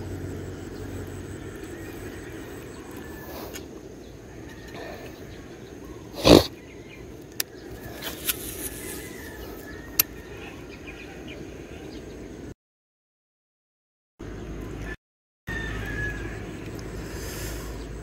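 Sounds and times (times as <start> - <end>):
outdoor background noise: 0.0 - 12.6, 14.2 - 18.0
reel whirring: 7.8 - 9.6.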